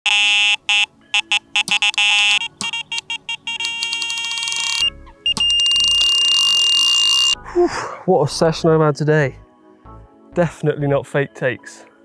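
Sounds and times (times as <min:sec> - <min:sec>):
electronic alarm beeps: 0:00.1 - 0:07.4
steady high alarm tone: 0:03.6 - 0:07.4.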